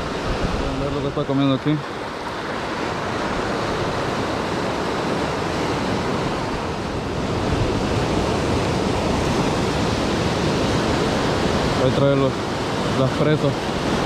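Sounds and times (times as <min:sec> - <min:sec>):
ocean surf on rocky shore: 0:00.0 - 0:14.0.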